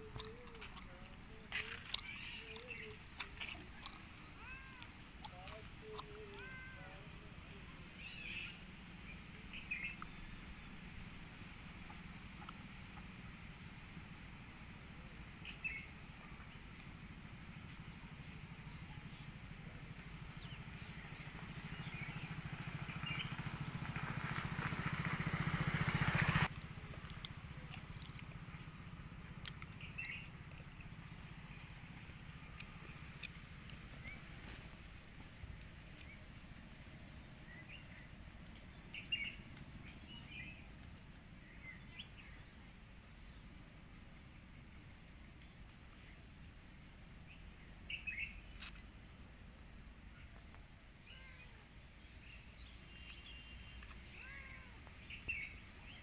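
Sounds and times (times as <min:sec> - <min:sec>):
high-pitched insect drone: 0:00.0 - 0:44.4
birds chirping: 0:00.0 - 0:50.4, 0:51.1 - 0:56.0.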